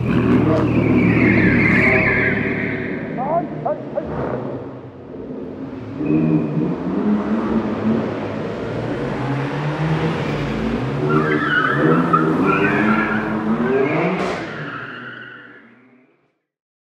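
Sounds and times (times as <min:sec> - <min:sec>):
tyres squealing: 0:00.0 - 0:03.8, 0:11.0 - 0:15.6.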